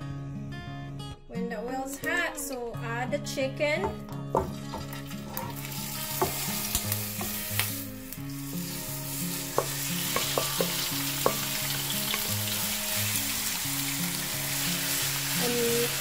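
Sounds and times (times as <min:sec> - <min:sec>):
chicken sizzling in hot oil: 0:04.6 - 0:16.0.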